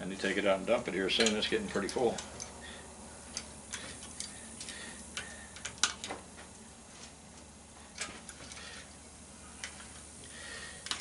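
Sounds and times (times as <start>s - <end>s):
faint steady hum: 0.0s - 11.0s
wire cutters snipping: 1.1s - 2.6s, 3.3s - 6.2s.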